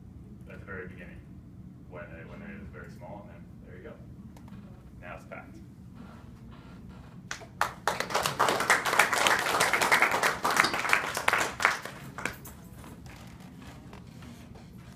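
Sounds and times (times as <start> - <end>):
audience applauding: 7.3 - 12.5.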